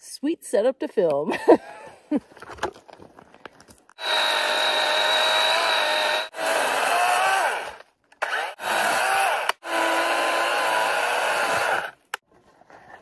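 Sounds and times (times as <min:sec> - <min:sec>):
chainsaw cutting log: 0:03.9 - 0:12.2.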